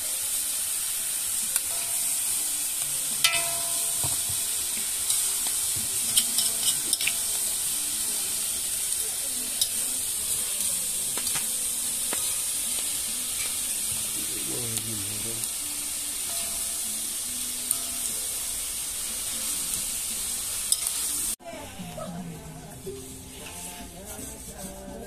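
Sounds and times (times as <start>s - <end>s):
meat sizzling in a wok: 0.0s - 25.0s
metal spatula clicking on pan: 6.1s - 7.3s, 20.7s - 21.0s.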